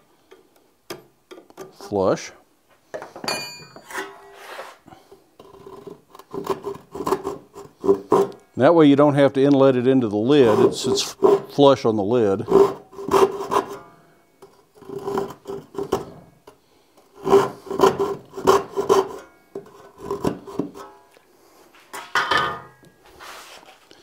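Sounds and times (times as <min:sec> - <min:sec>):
chisel paring and scraping wood: 0:05.4 - 0:08.4, 0:10.4 - 0:11.6, 0:12.4 - 0:13.8, 0:14.4 - 0:20.8.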